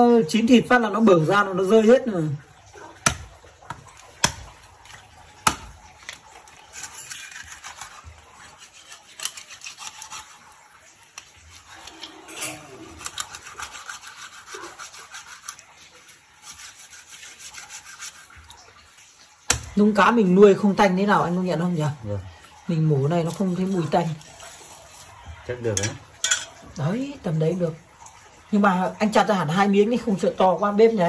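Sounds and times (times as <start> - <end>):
knife rasping on bamboo: 6.6 - 10.6, 11.2 - 18.4.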